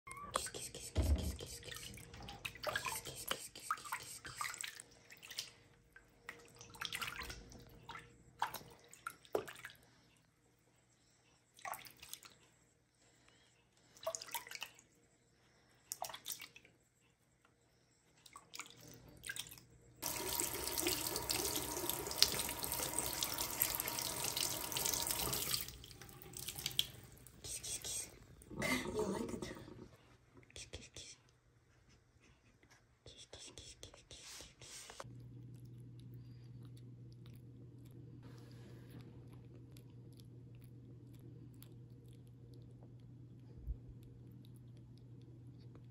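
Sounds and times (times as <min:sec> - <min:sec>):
water splashing in a sink: 0:00.8 - 0:09.8, 0:14.0 - 0:14.8, 0:18.3 - 0:29.9
tap water running: 0:20.0 - 0:29.9.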